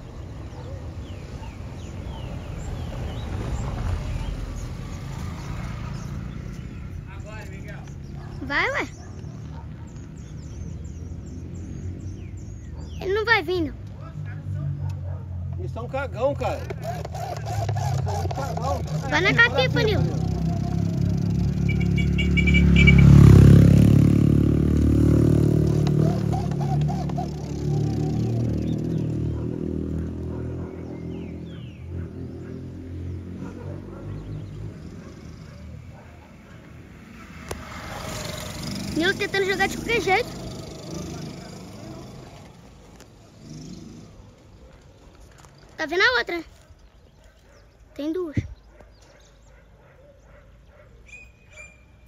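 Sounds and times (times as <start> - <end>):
vehicle engine passing by: 0.0 - 44.9.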